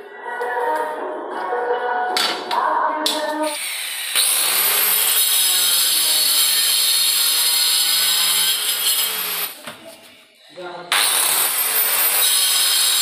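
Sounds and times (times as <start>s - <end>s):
electric stone cutter whining: 3.6s - 9.6s, 11.0s - 13.0s.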